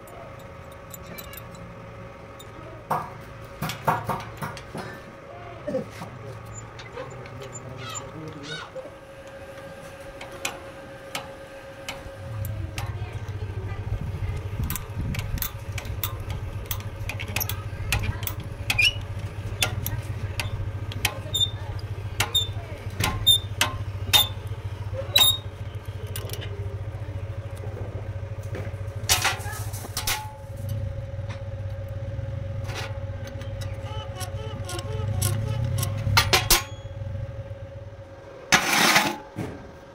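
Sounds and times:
sharp metal clicks: 0.0 - 4.8, 10.2 - 27.7, 29.0 - 37.0
steady low hum: 0.0 - 39.9.

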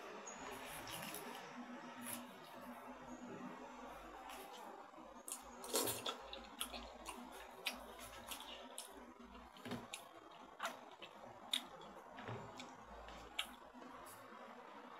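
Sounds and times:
spoon squishing into watermelon: 0.4 - 1.4, 2.0 - 2.7.

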